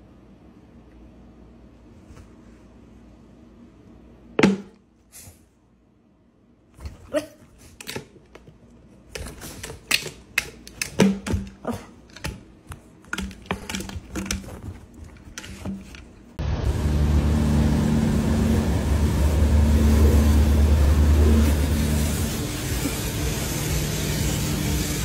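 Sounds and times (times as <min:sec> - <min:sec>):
plastic bottle clicking and crinkling: 0:09.1 - 0:16.1.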